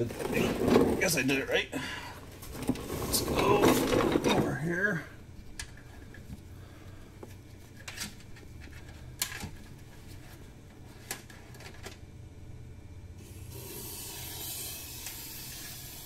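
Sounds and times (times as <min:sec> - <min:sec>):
aerosol can spraying hiss: 0:13.5 - 0:16.0.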